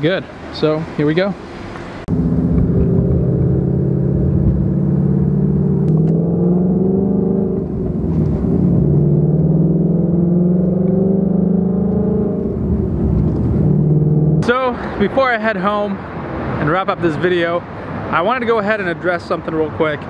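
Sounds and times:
car engine accelerating from inside cabin: 2.1 - 14.4.

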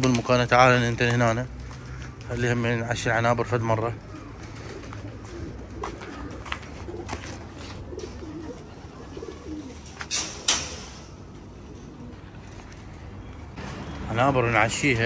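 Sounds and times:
pigeons cooing: 1.6 - 13.6.

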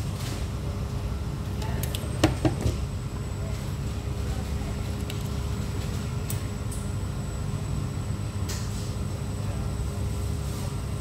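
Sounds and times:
restaurant room noise: 0.0 - 11.0.

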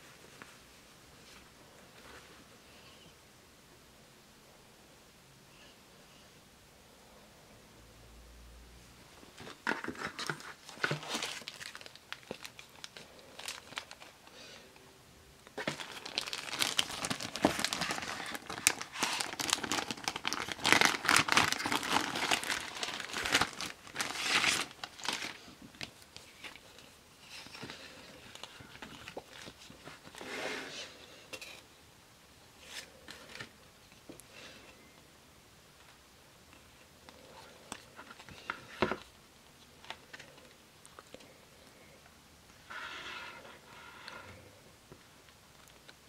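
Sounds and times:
plastic sleeve crinkling: 9.4 - 14.3, 15.6 - 30.2.

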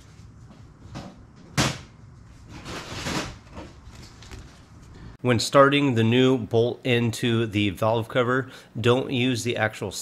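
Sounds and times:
rustling scrape: 2.3 - 5.2.

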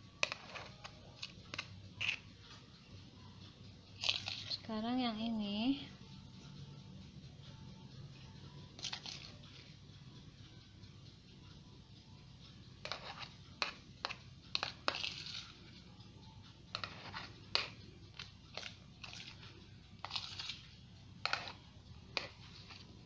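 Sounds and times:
spoon scraping and tapping bowl: 0.2 - 2.4, 4.0 - 4.6, 8.8 - 9.8, 12.8 - 15.7, 16.7 - 23.0.

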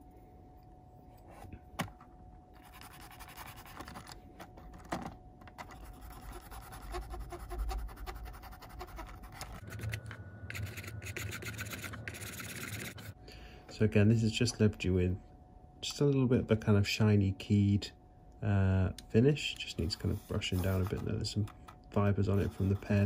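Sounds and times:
low hum: 0.0 - 23.0
pen scratching on plastic: 2.6 - 4.1, 5.6 - 13.1.

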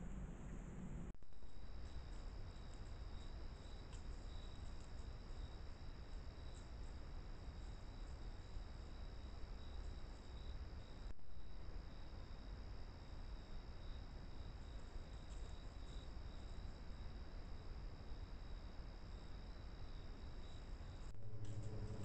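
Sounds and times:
low steady rumble: 0.0 - 9.6, 20.1 - 22.0
crickets trilling: 1.4 - 22.0.

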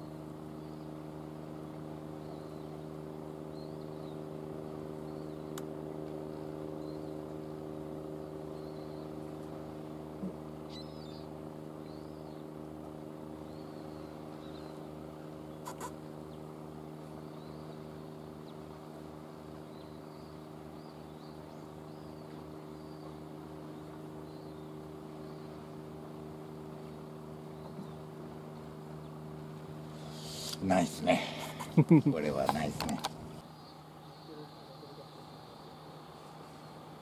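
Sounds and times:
low engine hum: 0.0 - 37.0
faint short chirps: 15.6 - 16.0.

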